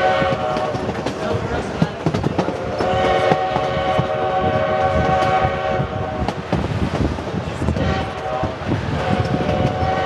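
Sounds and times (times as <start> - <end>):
steam locomotive whistle: 0.0 - 0.8, 2.8 - 6.3, 7.8 - 10.0
train cars rumbling on rails: 0.0 - 10.0.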